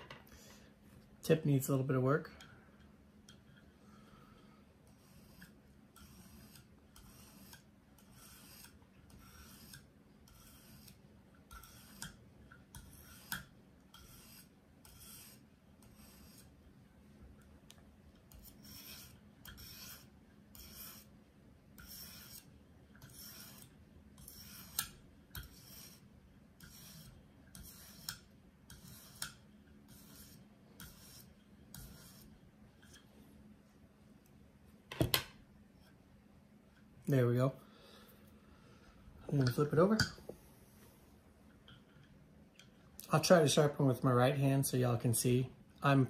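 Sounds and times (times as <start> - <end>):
sharpening stone scraping knife: 4.9 - 16.6, 18.3 - 21.2, 21.8 - 33.0.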